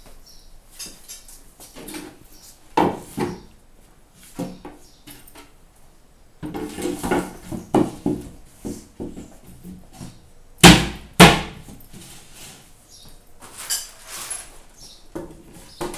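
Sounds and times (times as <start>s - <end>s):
cabinet panels knocking and scraping: 2.8s - 3.5s, 6.4s - 9.8s.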